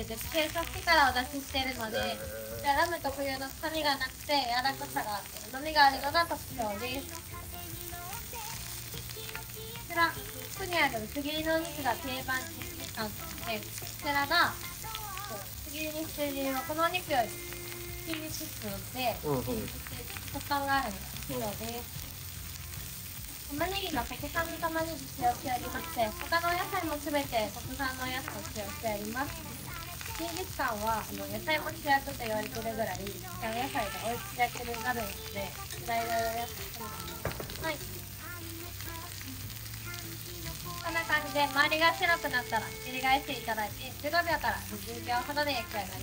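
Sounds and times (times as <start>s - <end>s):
people talking: 0.0s - 7.3s, 9.8s - 17.4s, 18.1s - 21.9s, 23.5s - 38.0s, 40.4s - 46.0s
background voices: 0.0s - 21.9s, 23.6s - 46.0s
meat sizzling on a grill: 0.0s - 46.0s
metal tongs turning meat: 23.8s - 46.0s.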